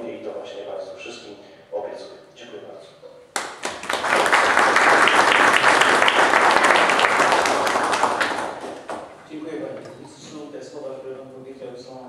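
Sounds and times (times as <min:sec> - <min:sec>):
crowd applauding: 0:03.4 - 0:09.2.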